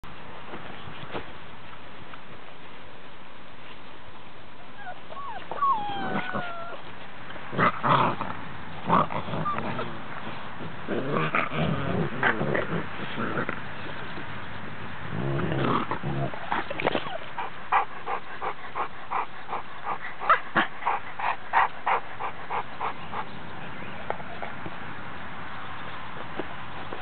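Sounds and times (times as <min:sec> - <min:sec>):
puppies whining: 0:04.6 - 0:06.9
puppies growling and yapping: 0:04.7 - 0:06.9, 0:07.5 - 0:10.1, 0:15.0 - 0:23.4.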